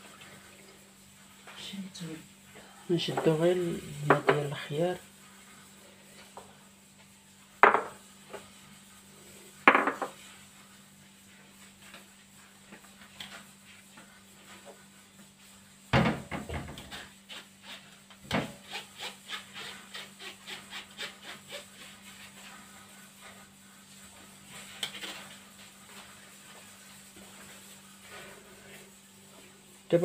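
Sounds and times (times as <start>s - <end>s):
kitchenware knocking: 7.6s - 8.0s, 9.7s - 10.2s.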